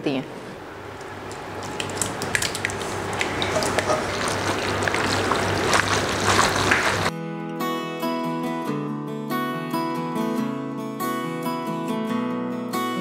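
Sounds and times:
wet squelching of pasta: 1.0 - 7.1
wooden spatula scraping bowl: 2.7 - 7.1
acoustic guitar music: 5.3 - 13.0.

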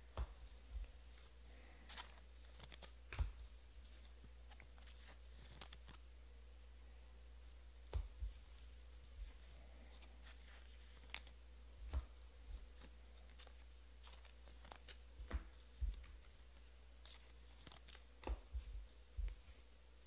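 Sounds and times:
soft low thumps: 0.0 - 1.0, 7.9 - 9.5, 15.1 - 16.4, 18.2 - 19.6
cards and foil wrappers crinkling: 1.1 - 3.0, 3.8 - 6.0, 9.8 - 11.4, 12.7 - 15.0, 17.0 - 18.1.

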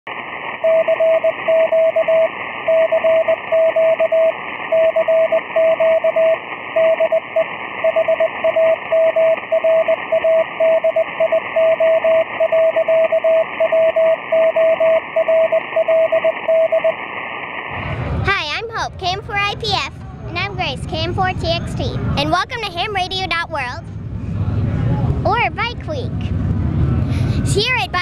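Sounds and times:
radio receiver hiss: 0.1 - 18.3
morse code tone: 0.6 - 17.0.

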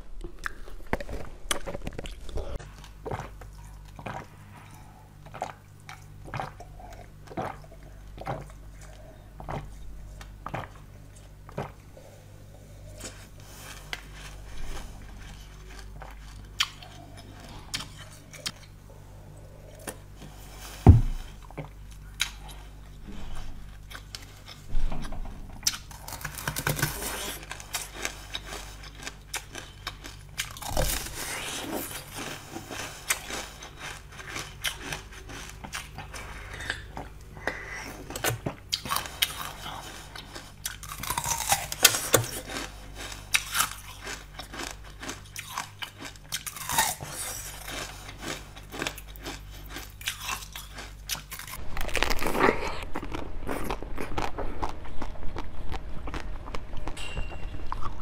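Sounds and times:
wet chewing: 0.2 - 12.1, 12.8 - 18.8, 25.6 - 57.0
loud knock: 20.9 - 21.2.

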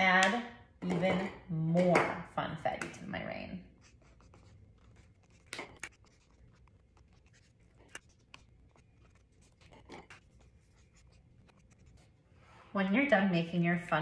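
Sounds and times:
marker scratching on paper: 3.6 - 12.6.

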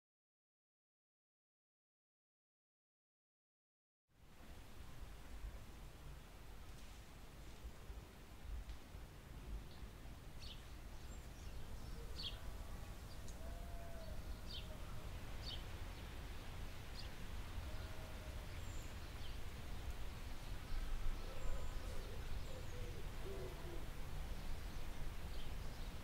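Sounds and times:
faint low-pitched bird calls: 9.6 - 26.0
birds chirping: 9.7 - 26.0.

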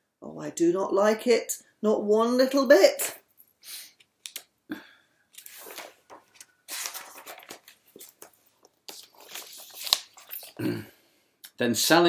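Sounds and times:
book pages rustling: 5.3 - 10.6.

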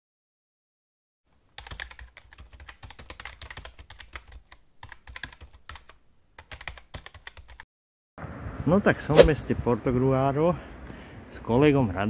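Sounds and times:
computer keyboard typing: 1.5 - 7.6.

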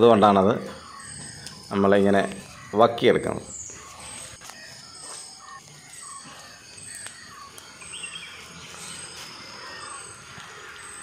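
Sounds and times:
birds and insects calling: 0.0 - 11.0
high repeating chirp: 0.0 - 11.0
burning leaves crackling: 3.7 - 11.0.

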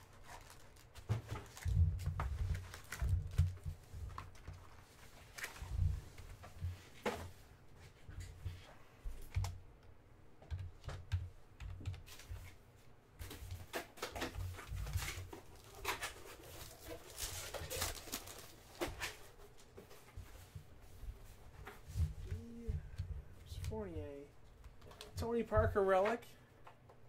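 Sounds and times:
foil packs crinkling: 0.0 - 4.5, 13.2 - 19.3.

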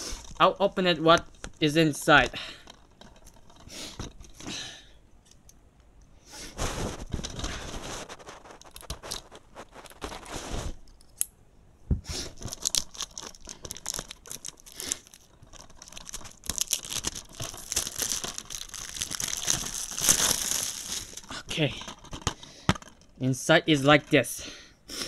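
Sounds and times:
cellophane tearing and crinkling: 6.5 - 10.8, 12.3 - 22.3.

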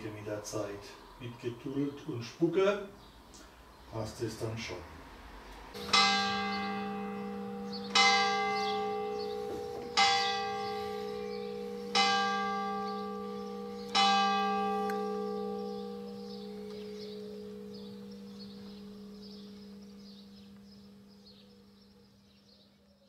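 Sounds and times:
church bell striking: 5.7 - 22.7.

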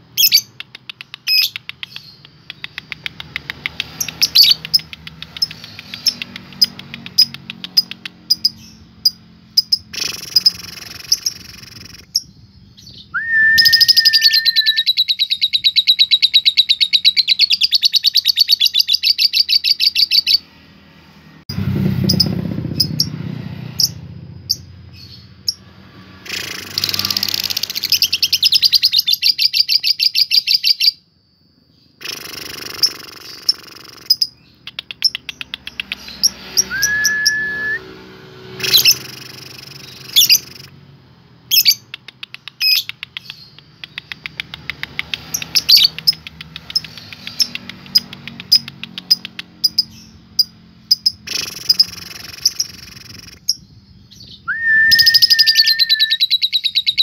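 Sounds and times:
lovebirds chattering trill: 0.0 - 13.1, 38.6 - 40.8, 41.5 - 57.0
bird whistled note: 13.2 - 14.9, 36.6 - 38.0, 54.4 - 56.4.

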